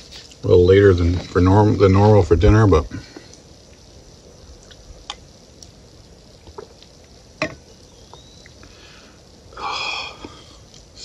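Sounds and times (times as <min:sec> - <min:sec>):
breathy exhale: 0:08.6 - 0:10.7.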